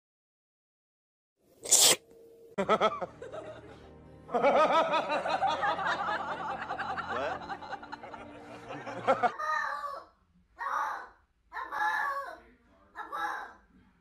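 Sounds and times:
cat sneezing: 1.6 - 2.0.

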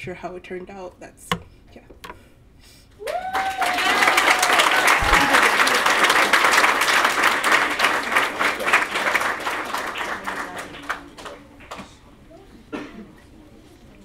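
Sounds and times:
audience applause: 3.0 - 11.9.

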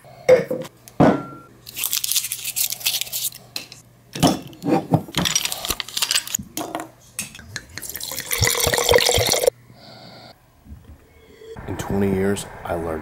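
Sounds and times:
wine glugging into glass: 7.8 - 9.5.

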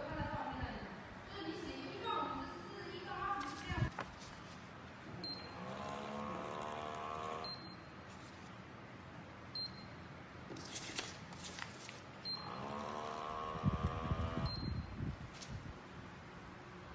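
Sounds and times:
soap dispenser pump whirring: 5.5 - 7.4, 12.4 - 14.5.

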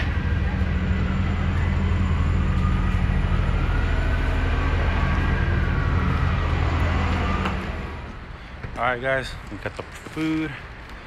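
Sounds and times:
vehicle engine rumbling with whine: 0.0 - 8.3.

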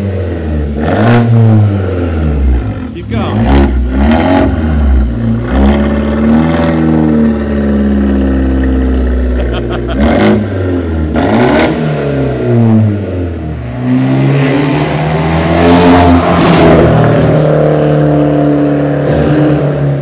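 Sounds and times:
car engine revving: 0.0 - 20.0.

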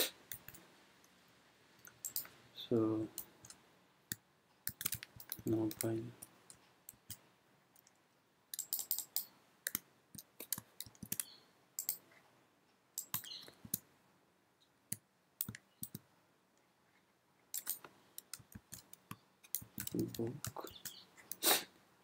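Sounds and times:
keyboard typing: 1.8 - 2.3, 4.7 - 6.0, 8.5 - 12.0, 13.0 - 13.8, 17.6 - 21.3
mouse clicks: 7.8 - 12.0, 13.0 - 13.8.

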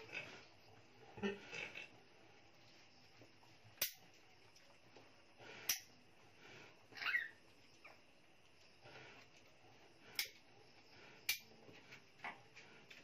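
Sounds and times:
piglet squeak: 6.9 - 8.0.

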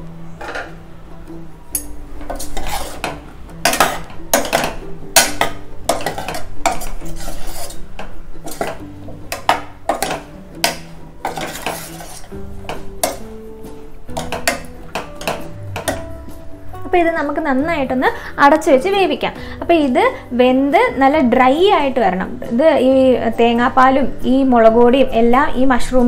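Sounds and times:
soft background music: 0.0 - 26.0
metal spoon clinking on pot: 1.7 - 7.8, 8.4 - 13.2.

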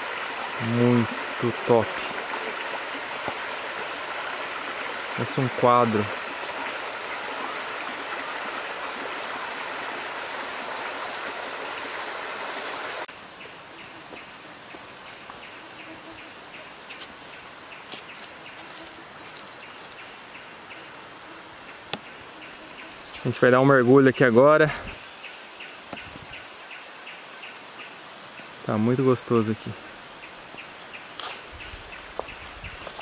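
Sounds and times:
insects trilling: 0.0 - 11.2, 13.1 - 33.0
stream rippling over rocks: 0.0 - 13.1.

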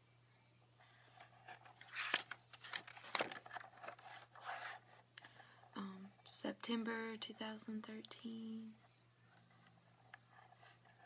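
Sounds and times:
calendar page flipping on wire: 1.0 - 4.7.

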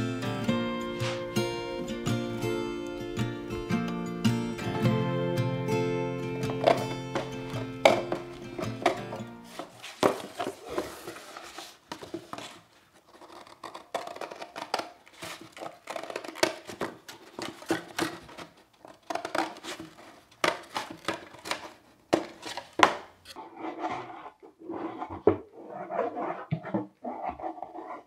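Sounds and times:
scissors cutting cardboard: 1.0 - 1.3, 6.6 - 28.0
cardboard box being handled: 6.6 - 13.3.

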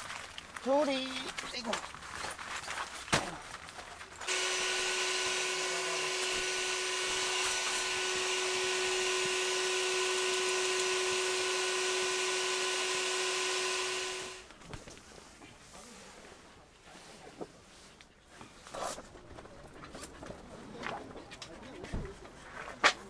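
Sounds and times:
small electric motor running: 4.3 - 14.5.

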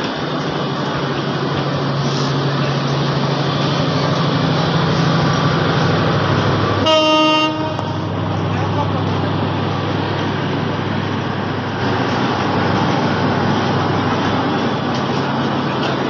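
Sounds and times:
train engine drone and rumble: 0.0 - 16.0
train horn blast: 6.8 - 8.2.

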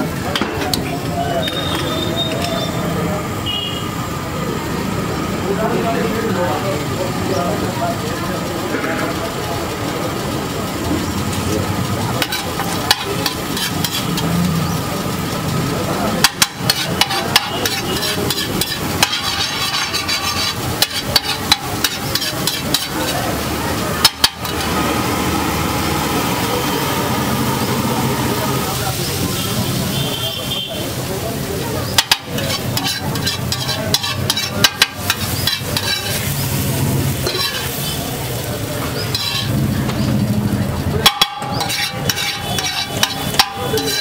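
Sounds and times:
egg mixture sizzling: 6.8 - 44.0
spatula clanking on iron griddle: 12.2 - 14.8, 16.1 - 24.9, 31.8 - 40.2, 41.0 - 44.0.

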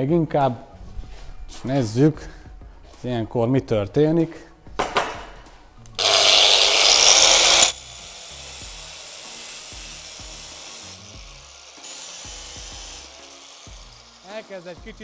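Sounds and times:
angle grinder cutting tile: 6.0 - 15.0.

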